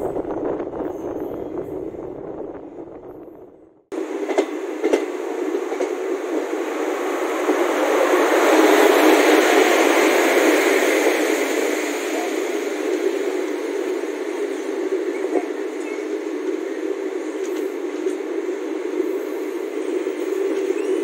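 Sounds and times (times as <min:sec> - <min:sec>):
freight train rushing past: 0:00.0 - 0:21.0.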